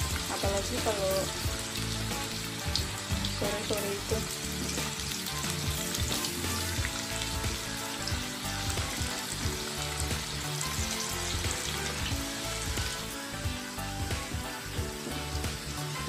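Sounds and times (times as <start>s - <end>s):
potato slices deep-frying in oil: 0.0s - 16.0s.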